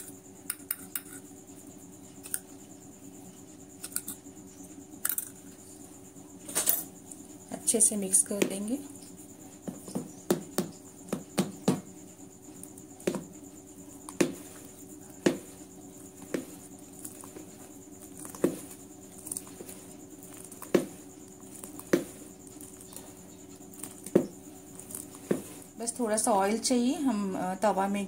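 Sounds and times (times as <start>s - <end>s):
faint steady hum: 0.0s - 28.0s
spoon stirring thick batter: 7.0s - 25.8s.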